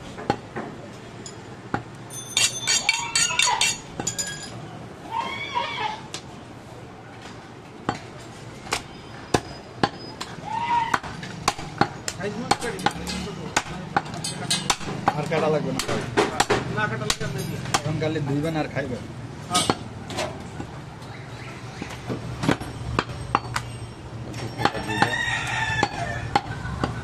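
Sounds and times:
metal clinks: 0:02.1 - 0:04.6
high-pitched voices: 0:02.7 - 0:03.8.

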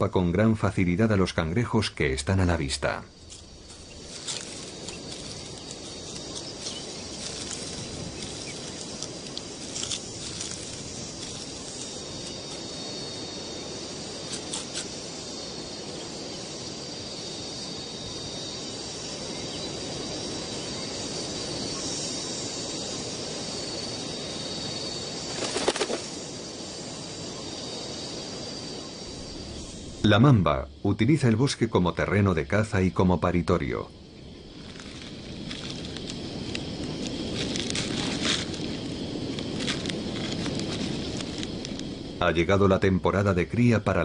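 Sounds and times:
insect hum: 0:00.0 - 0:44.0
low hiss: 0:00.0 - 0:44.0
bird wingbeats: 0:03.3 - 0:12.8, 0:25.1 - 0:26.4.

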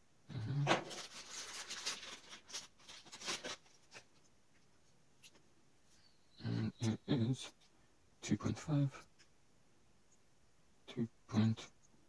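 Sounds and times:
plastic bag crinkling: 0:00.7 - 0:04.2.

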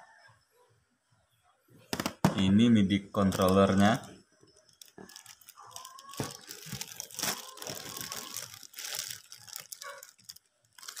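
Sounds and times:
plastic wrapping crinkling: 0:03.1 - 0:11.0.

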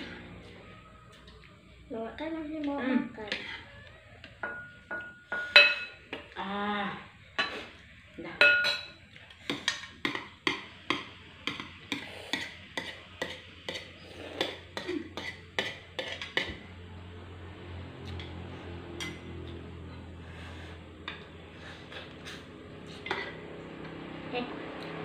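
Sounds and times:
cutlery clinking on plates: 0:04.3 - 0:06.3, 0:08.4 - 0:16.6, 0:23.0 - 0:23.4.

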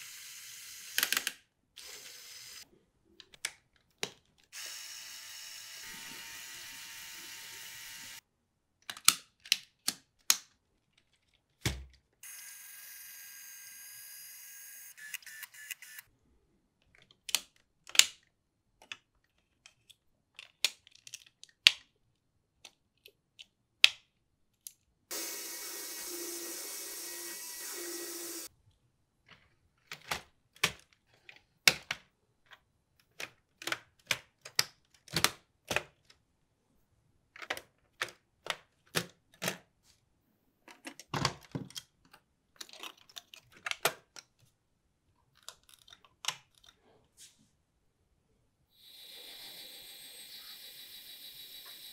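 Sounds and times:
plastic parts clicking together: 0:08.8 - 0:12.0, 0:16.8 - 0:24.9, 0:29.2 - 0:36.2, 0:37.3 - 0:39.7, 0:40.6 - 0:44.5, 0:45.2 - 0:46.8
steady whir: 0:48.8 - 0:51.9.

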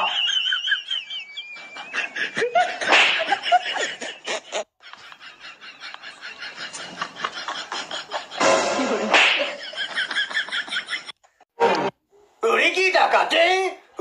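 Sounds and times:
people laughing: 0:00.0 - 0:11.2.

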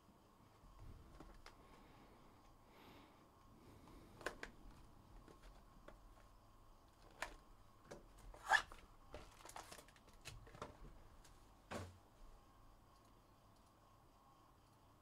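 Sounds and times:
card wrappers rustling and clicking: 0:07.0 - 0:10.8.

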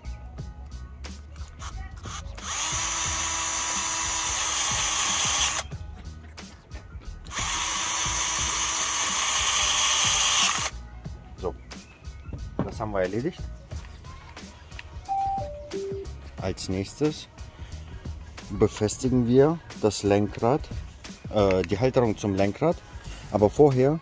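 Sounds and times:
cordless drill driving screws: 0:02.0 - 0:05.7, 0:07.3 - 0:10.7.

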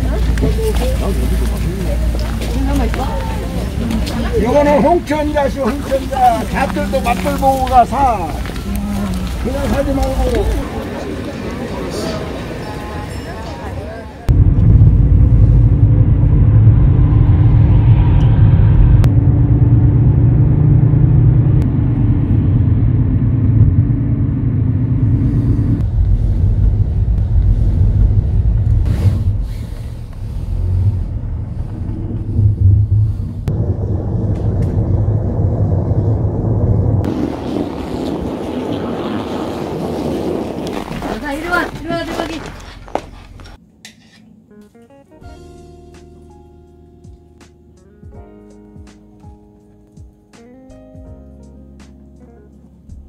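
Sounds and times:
car cabin road rumble: 0:14.3 - 0:43.6.

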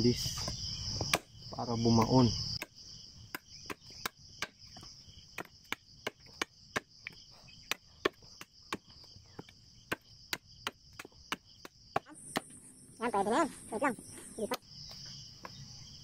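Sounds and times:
high insect chirring: 0:00.0 - 0:16.0
machete chopping wooden stick: 0:00.4 - 0:12.6.

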